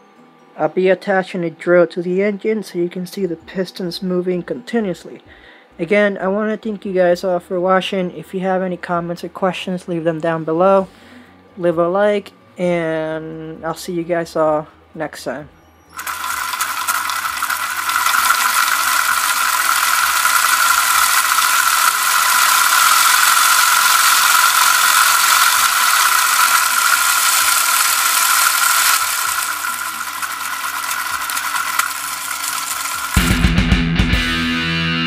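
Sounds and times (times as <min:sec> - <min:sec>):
cordless drill running: 0:15.9 - 0:33.5
mechanical rattle of moving parts: 0:16.0 - 0:33.3.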